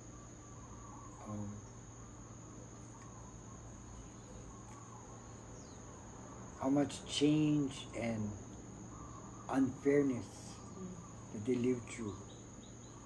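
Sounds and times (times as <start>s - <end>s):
faint cricket trilling: 0.0s - 13.0s
person humming: 10.7s - 11.0s.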